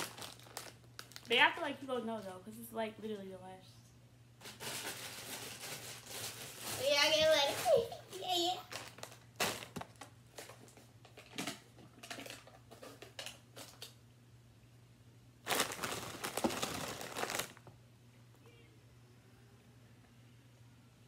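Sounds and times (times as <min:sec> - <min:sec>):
chip bag crinkling: 0:00.0 - 0:01.6, 0:04.4 - 0:14.0, 0:15.4 - 0:17.7.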